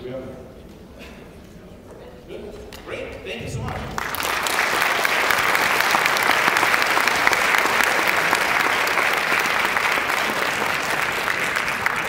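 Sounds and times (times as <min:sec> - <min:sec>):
audience applauding: 0:03.5 - 0:12.0.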